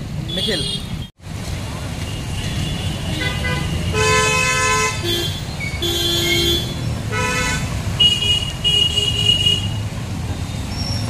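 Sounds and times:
vehicle horns tooting: 0.3s - 1.1s, 2.0s - 9.9s.

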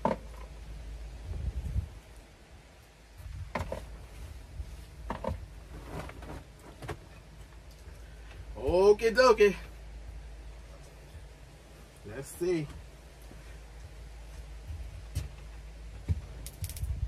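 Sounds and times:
fabric rustling: 3.7s - 7.4s.

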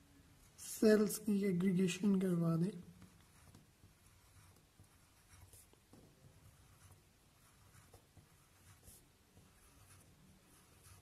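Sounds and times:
pen scratching on paper: 2.9s - 11.0s.

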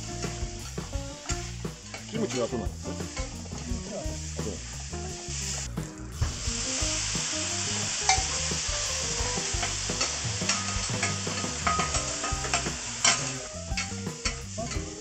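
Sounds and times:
food sizzling on a griddle: 0.0s - 15.0s
metal spatula scraping and clacking: 1.3s - 2.6s, 10.5s - 14.9s.

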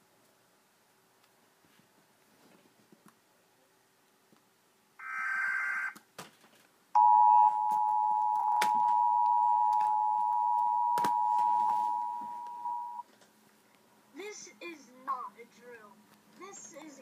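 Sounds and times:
two-tone alert signal: 7.0s - 13.0s.

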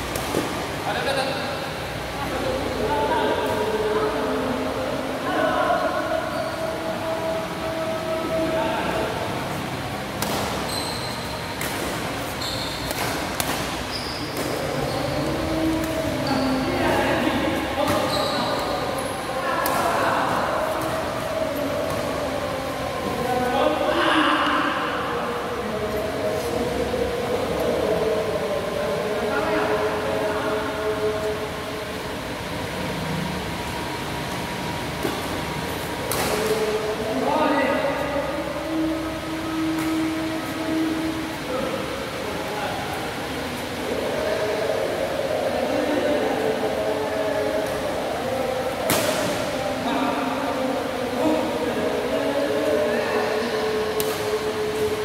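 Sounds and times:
background noise: 0.0s - 55.0s
shoes squeaking on court: 10.5s - 16.7s, 17.9s - 19.1s
rackets hitting shuttlecock: 11.6s - 13.8s.

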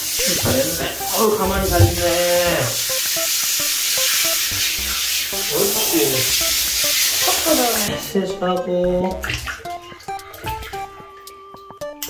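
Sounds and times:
shower head spraying water: 0.0s - 8.1s.

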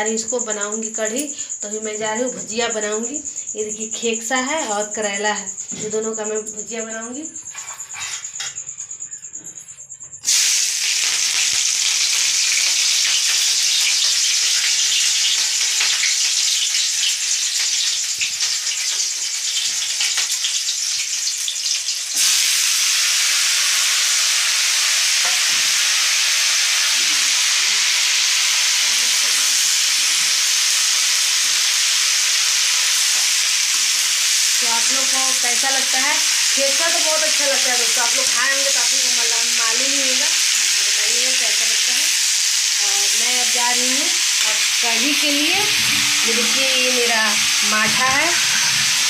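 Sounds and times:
vegetables sizzling in hot oil: 10.2s - 49.0s.

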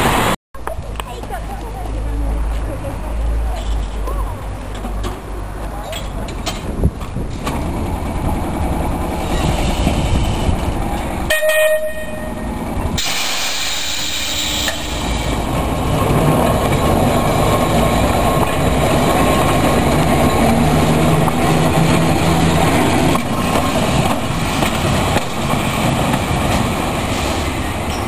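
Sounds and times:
tram rolling on rails: 0.0s - 28.0s
hiss: 13.0s - 15.2s.

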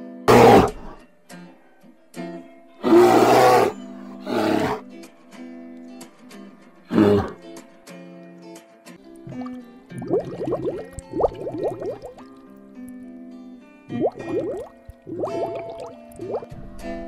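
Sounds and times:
bears roaring: 0.3s - 1.0s, 2.8s - 4.8s, 6.9s - 7.4s.

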